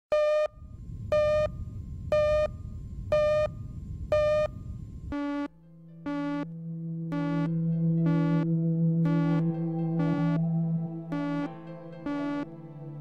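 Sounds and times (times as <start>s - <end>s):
low crackly noise: 0.6s - 5.5s
synthesizer music: 5.3s - 13.0s.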